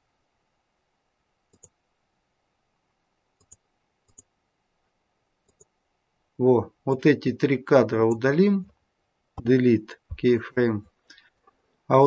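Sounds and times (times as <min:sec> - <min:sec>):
computer mouse clicks: 0:01.5 - 0:01.8, 0:03.4 - 0:04.3, 0:05.4 - 0:05.8.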